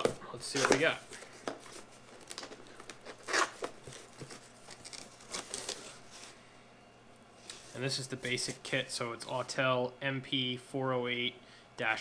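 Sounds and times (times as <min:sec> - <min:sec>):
cardboard ripping: 0:03.0 - 0:06.0.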